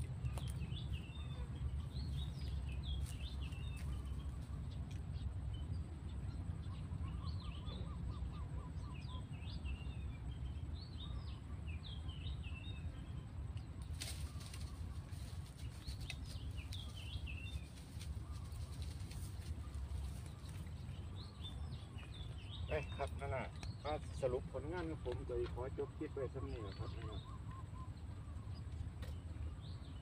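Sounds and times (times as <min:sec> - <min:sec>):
birds chirping: 0:00.0 - 0:30.0
low steady rumble: 0:00.0 - 0:30.0
crackling rustle: 0:13.8 - 0:22.4.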